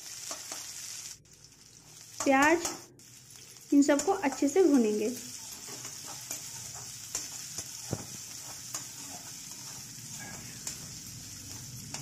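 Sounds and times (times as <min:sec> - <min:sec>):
onions sizzling in hot oil: 0:00.0 - 0:12.0
spatula scraping pan: 0:02.2 - 0:12.0
knock on pan: 0:07.9 - 0:08.2.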